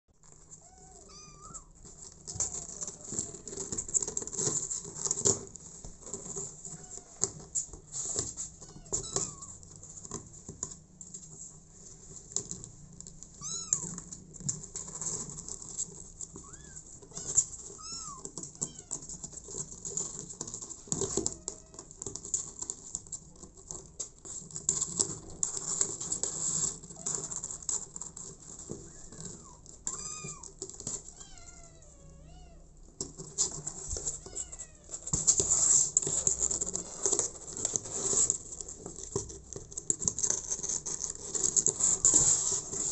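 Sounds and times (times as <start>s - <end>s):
kittens meowing: 0.6s - 3.6s, 8.6s - 9.6s, 13.4s - 14.0s, 16.4s - 19.1s, 28.9s - 32.6s
claws scratching cardboard: 13.4s - 29.6s, 33.1s - 42.9s.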